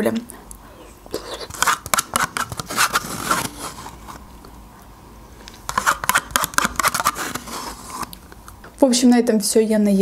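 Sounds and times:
metal spoon scraping plastic cup: 0:01.3 - 0:04.2, 0:05.7 - 0:08.2.

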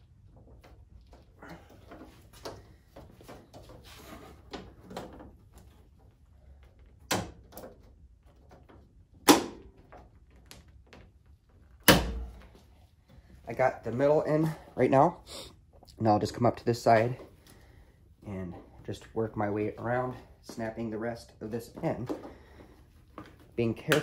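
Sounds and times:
light rubbing and handling: 0:00.4 - 0:07.0.

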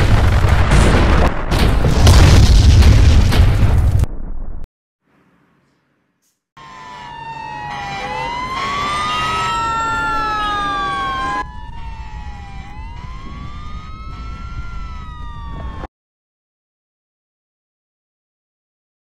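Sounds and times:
sirens wailing: 0:06.6 - 0:15.9.

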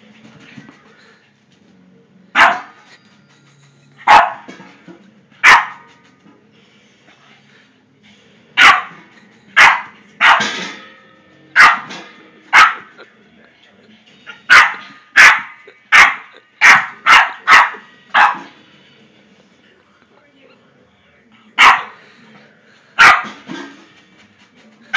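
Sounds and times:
dog barking: 0:02.4 - 0:02.8, 0:04.1 - 0:04.5, 0:05.4 - 0:05.9, 0:08.6 - 0:09.0, 0:09.6 - 0:10.5, 0:11.6 - 0:11.9, 0:12.5 - 0:12.9, 0:14.5 - 0:18.5, 0:21.6 - 0:22.0, 0:23.0 - 0:23.4.

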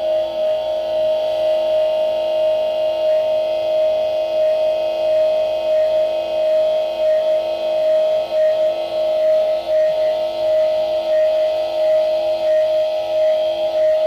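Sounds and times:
ambient drone music: 0:00.0 - 0:14.0.

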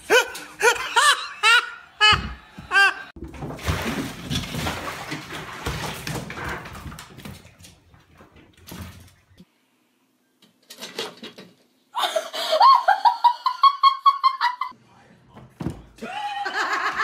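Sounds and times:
high-pitched laughter: 0:00.0 - 0:03.1, 0:12.0 - 0:14.7.

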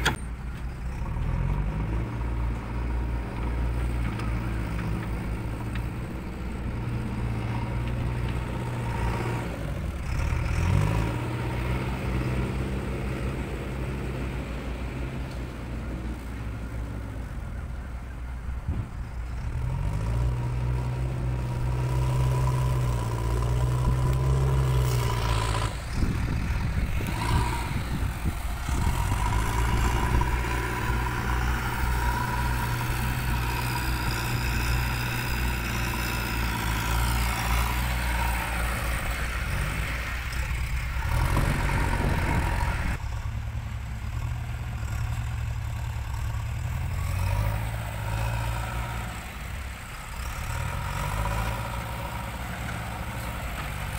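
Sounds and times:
loader bucket in soil: 0:00.0 - 0:01.7
diesel engine running: 0:00.0 - 0:53.9.

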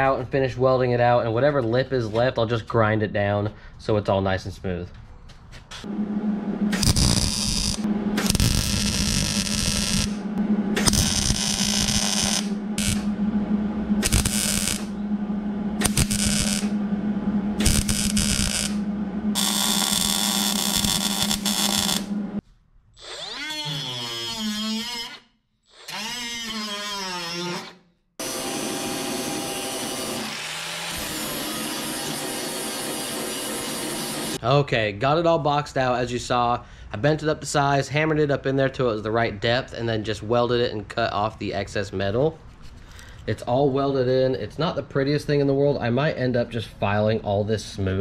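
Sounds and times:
angle grinder grinding metal: 0:06.7 - 0:10.2, 0:10.8 - 0:13.1, 0:14.0 - 0:15.0, 0:15.8 - 0:16.7, 0:17.6 - 0:22.1, 0:25.8 - 0:34.4
welder crackling: 0:06.7 - 0:13.1, 0:14.0 - 0:14.9, 0:15.8 - 0:16.7, 0:17.6 - 0:22.2.

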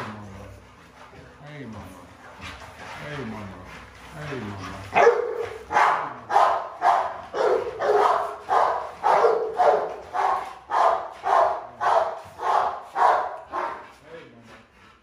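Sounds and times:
dog barking: 0:04.9 - 0:13.8.

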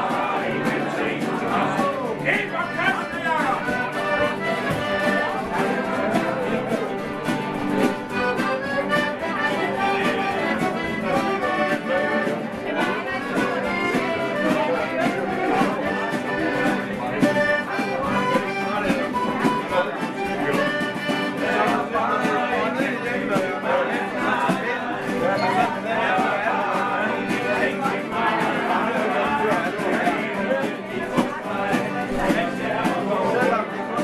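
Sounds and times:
men singing: 0:00.0 - 0:34.0
strummed acoustic guitars: 0:00.0 - 0:34.0
piano accordion: 0:02.6 - 0:06.5, 0:08.0 - 0:12.4, 0:13.0 - 0:21.8.

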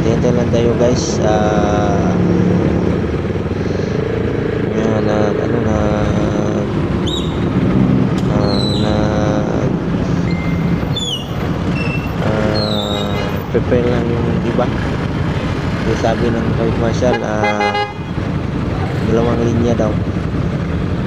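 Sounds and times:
motorcycle engines idling: 0:00.0 - 0:21.0
short high-pitched chirps: 0:10.2 - 0:13.3.

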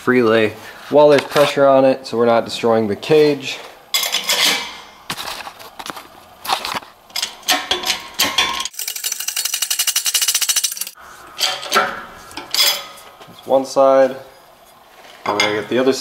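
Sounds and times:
metal clinks and knocks: 0:04.0 - 0:04.8
fast metallic ticking: 0:08.7 - 0:11.0.

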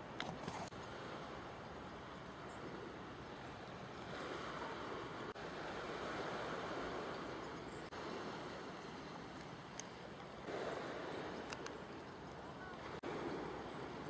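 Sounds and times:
sea at the shore: 0:00.0 - 0:14.0
wind: 0:00.0 - 0:14.0.

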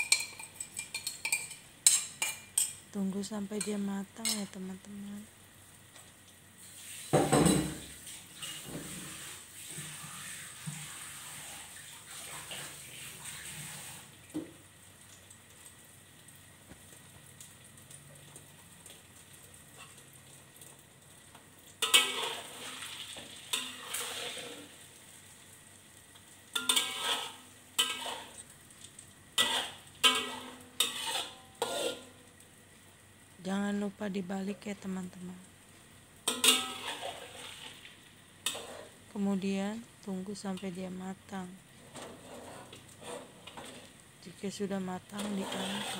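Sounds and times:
omelette sizzling in oil: 0:00.0 - 0:45.9
metal spatula scraping a wok: 0:08.4 - 0:11.6, 0:21.8 - 0:24.8, 0:26.6 - 0:28.4, 0:29.4 - 0:32.2, 0:36.3 - 0:39.0, 0:41.8 - 0:43.9, 0:45.1 - 0:45.9.

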